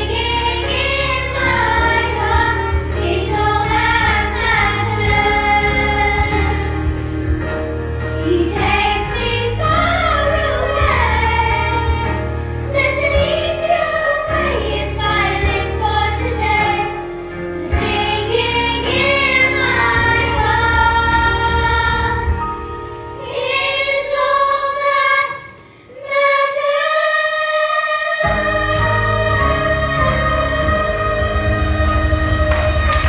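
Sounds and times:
instrumental accompaniment: 0.0 - 26.4
girls choir singing: 0.0 - 33.0.

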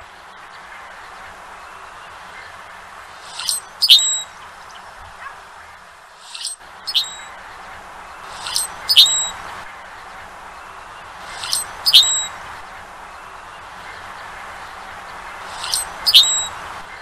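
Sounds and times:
steady background hiss: 0.0 - 17.0
blackbird creaky squeaky song: 3.2 - 4.3, 6.2 - 7.3, 8.3 - 9.4, 11.2 - 12.4, 15.4 - 16.6.

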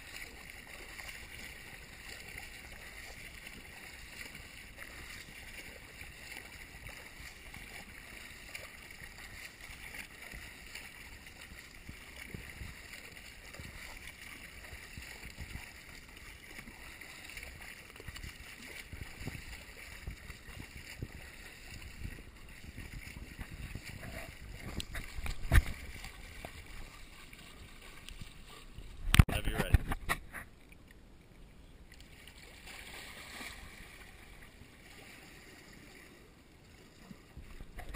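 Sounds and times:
water splashing from swimming: 0.0 - 37.9.

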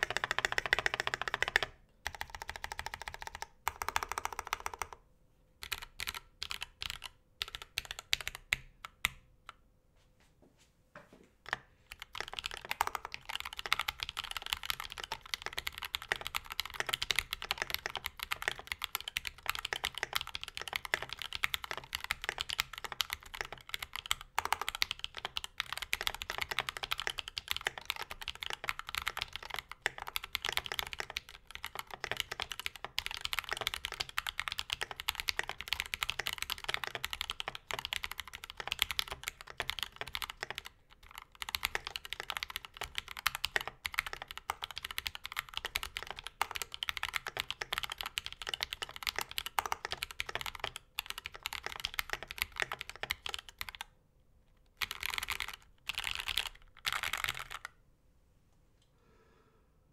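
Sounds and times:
mechanical keyboard typing: 0.0 - 5.0, 5.6 - 9.2, 11.5 - 53.9, 54.8 - 57.8.

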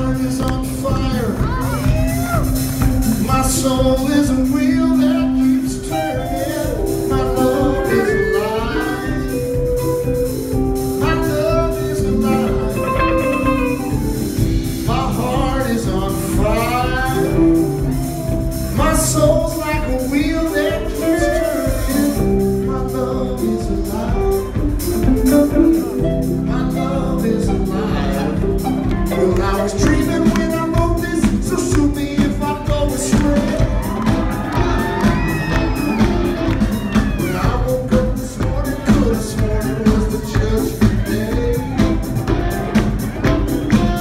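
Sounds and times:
live rock band playing: 0.0 - 44.0
person singing: 0.0 - 44.0.

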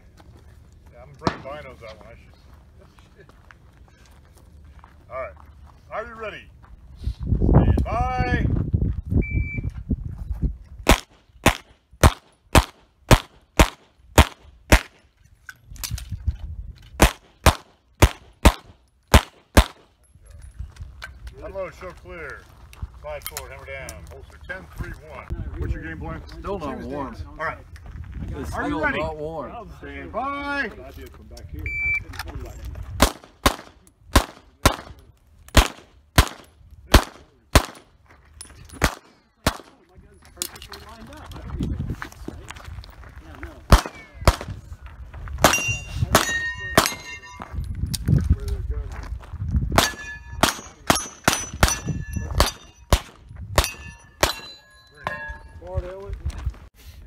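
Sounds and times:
rapid pistol fire: 10.9 - 15.0, 17.0 - 19.9, 33.0 - 34.9, 35.6 - 37.8.

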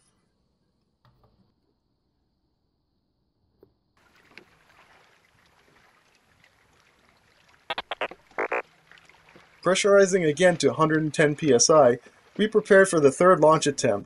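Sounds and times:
wind: 0.0 - 14.0
small waves lapping at a dock: 4.0 - 14.0.

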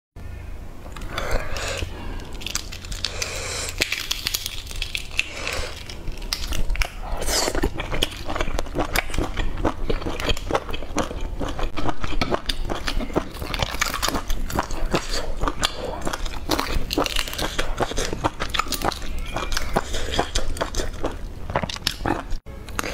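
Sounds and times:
eggshell crackling: 0.9 - 22.8
wet chewing: 0.9 - 22.9.

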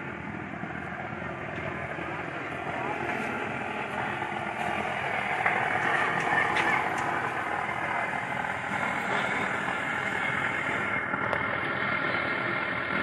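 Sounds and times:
street traffic: 0.0 - 13.0
background voices: 0.8 - 11.0.

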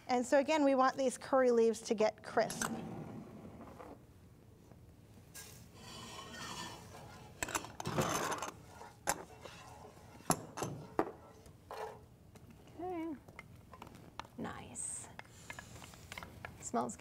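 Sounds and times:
spoon stirring in saucepan of oil: 5.3 - 12.6.

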